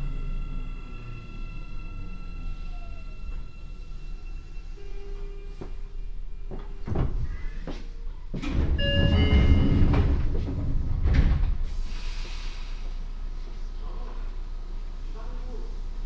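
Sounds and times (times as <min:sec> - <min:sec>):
train clunks: 0:08.4 - 0:12.4
hiss of air from doors: 0:11.6 - 0:13.5.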